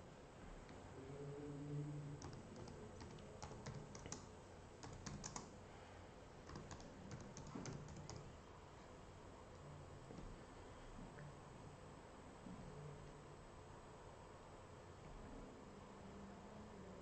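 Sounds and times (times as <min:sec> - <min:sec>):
faint computer keyboard typing: 0:02.1 - 0:05.6, 0:06.4 - 0:08.4.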